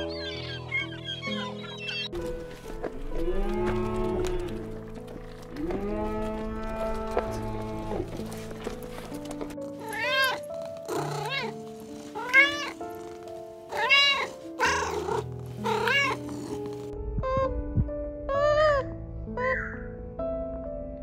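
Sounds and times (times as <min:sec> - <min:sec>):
soft background music: 0:00.0 - 0:21.0
cat meowing: 0:09.8 - 0:12.8, 0:13.7 - 0:16.6, 0:18.3 - 0:19.7.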